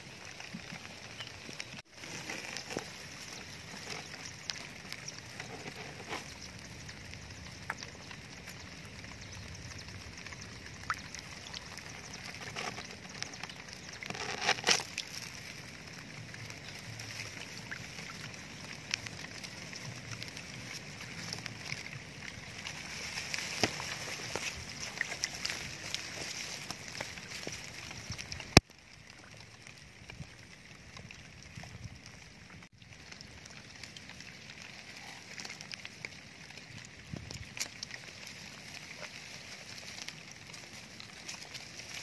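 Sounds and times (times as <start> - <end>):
water sloshing and splashing: 0.0 - 42.0.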